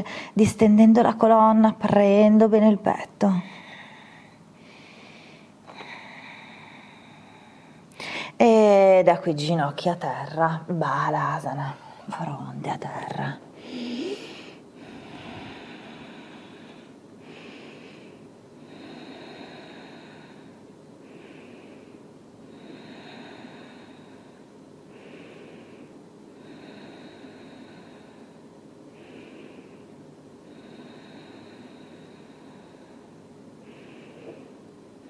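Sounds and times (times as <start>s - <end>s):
woman breathing deeply: 0.0s - 0.4s, 3.5s - 8.4s, 13.6s - 35.0s.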